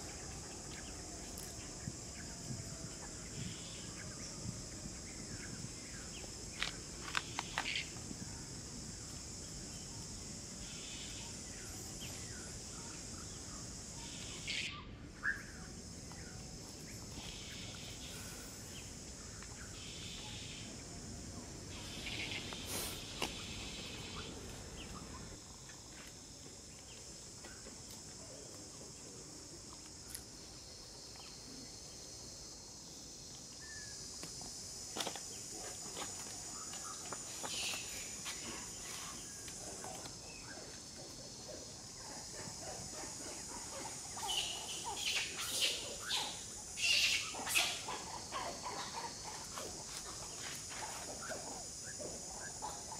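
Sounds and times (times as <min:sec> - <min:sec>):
high-pitched insect drone: 0:29.8 - 0:52.9.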